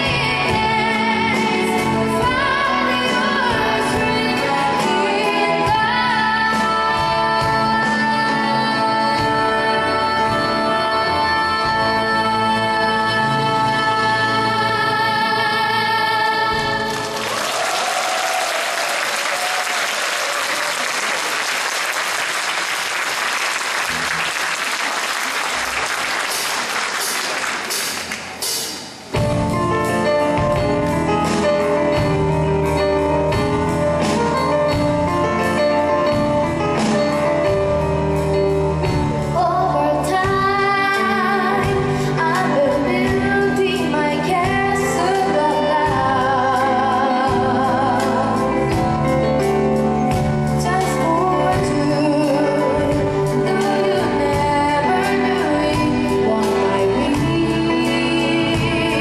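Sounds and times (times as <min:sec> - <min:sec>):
orchestra with piano playing: 0:00.0 - 0:18.5, 0:19.4 - 0:59.0
audience applauding: 0:16.9 - 0:28.5.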